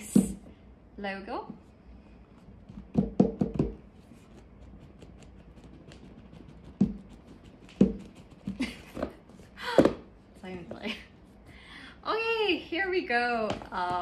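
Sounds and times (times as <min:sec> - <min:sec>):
taps and knocks on cardboard box: 0:02.8 - 0:03.8.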